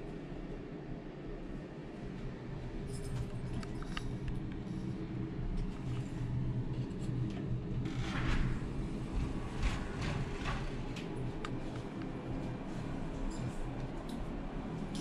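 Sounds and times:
sliding glass door opening: 7.8 - 11.3.

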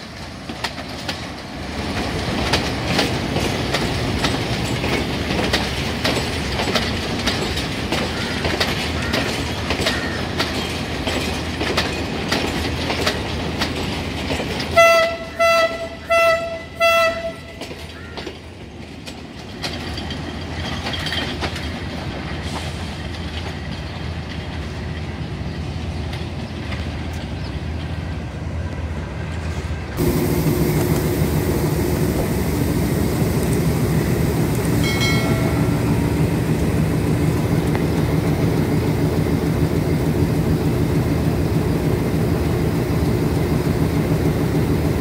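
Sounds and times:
train rumbling on rails: 0.0 - 45.0
train horn blasts: 14.8 - 17.6.

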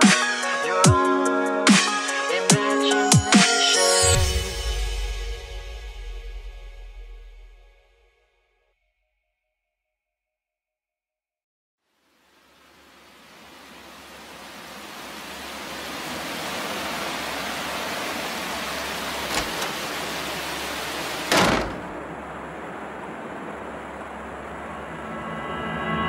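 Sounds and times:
steady rushing noise: 12.9 - 26.0.

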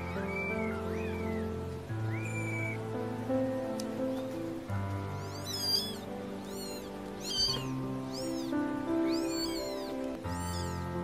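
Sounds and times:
kitten mewing: 0.0 - 2.8, 5.1 - 10.9
background music: 0.0 - 11.0.

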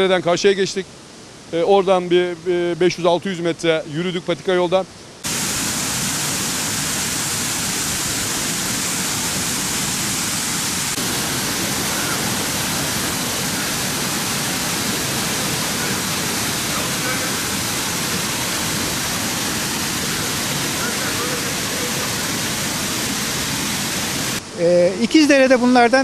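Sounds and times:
waterfall pouring into pool: 5.2 - 24.4.

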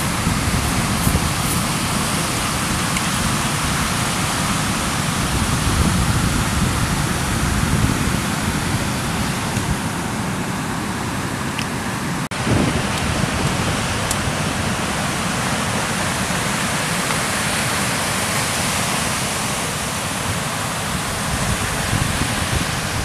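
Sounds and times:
surf breaking on beach: 0.0 - 11.1, 12.0 - 23.0.

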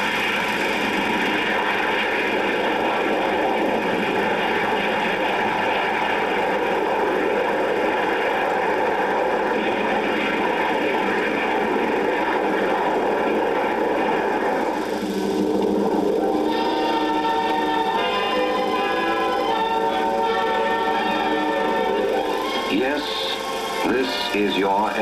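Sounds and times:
jet airliner taking off: 0.0 - 25.0
music: 14.7 - 25.0.

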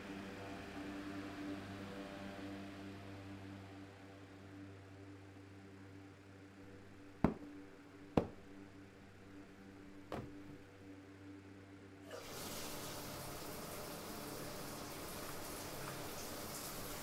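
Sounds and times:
sharp knocks: 7.2 - 7.6, 8.2 - 8.6, 10.1 - 10.6.

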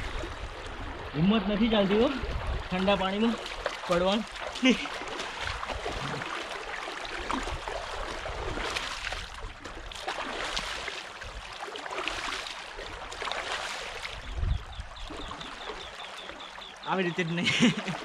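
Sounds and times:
trickle of flowing water: 0.0 - 18.0
water splashing: 0.0 - 18.0.

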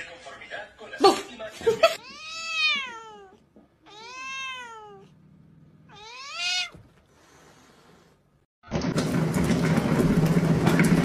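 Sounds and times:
cat meowing: 2.0 - 5.2, 5.9 - 7.0.

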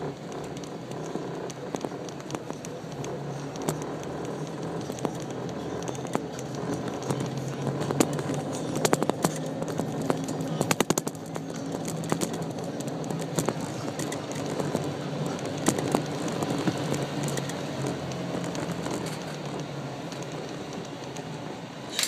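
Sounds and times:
golf cart humming: 0.0 - 22.0
sharp clicks and rattles: 0.0 - 22.0.

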